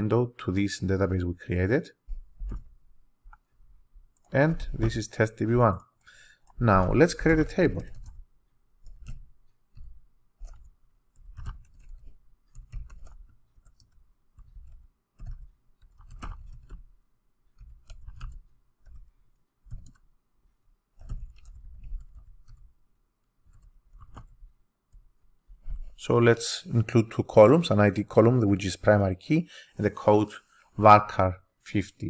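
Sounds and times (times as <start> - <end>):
computer keyboard key clicks: 19.7 - 20.1.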